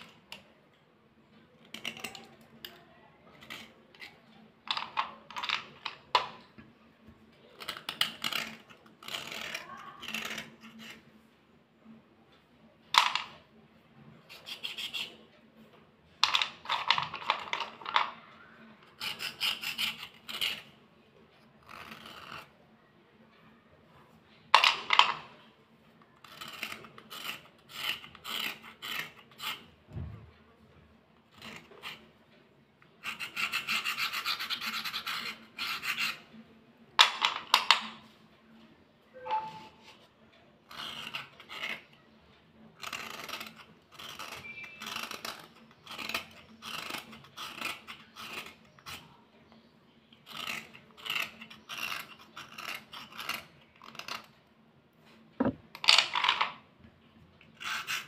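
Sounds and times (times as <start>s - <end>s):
metal file scraping slate pencil: 1.6s - 6.6s, 7.4s - 11.2s, 14.2s - 15.4s, 18.8s - 20.8s, 21.4s - 22.6s, 26.2s - 29.8s, 31.3s - 32.2s, 32.8s - 36.4s, 39.1s - 42.1s, 42.8s - 54.3s, 57.4s - 58.0s.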